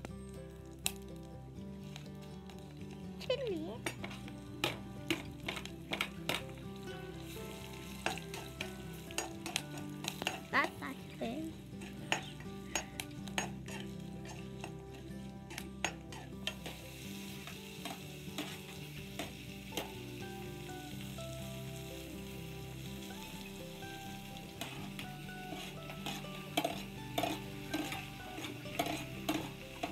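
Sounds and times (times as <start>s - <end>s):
chillies sizzling in oil: 0.0s - 29.9s
metal spoon scraping pan: 7.2s - 10.8s, 11.7s - 17.0s, 17.8s - 19.9s, 24.6s - 29.9s.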